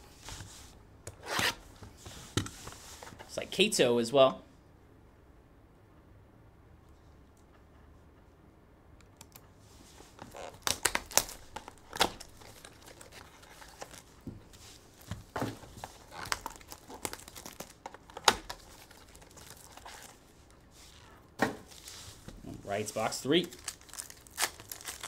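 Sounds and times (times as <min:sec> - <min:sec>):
card packs crinkling and rustling: 0:10.0 - 0:25.0.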